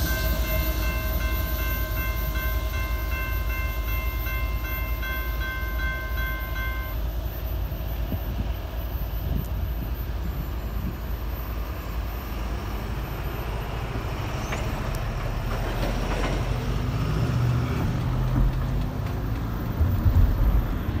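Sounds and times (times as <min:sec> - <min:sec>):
road noise rumble: 0:08.0 - 0:21.0.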